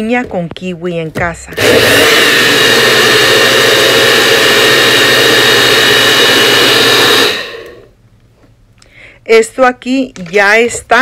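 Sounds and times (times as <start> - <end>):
blender motor whining: 1.6 - 7.9.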